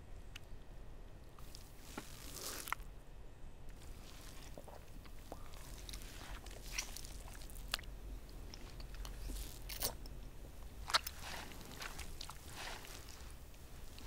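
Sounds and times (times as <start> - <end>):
low steady hum: 0.0 - 14.0
wet mouth eating sounds: 1.4 - 2.8, 3.8 - 14.0
lip smacks and clicks: 4.5 - 14.0.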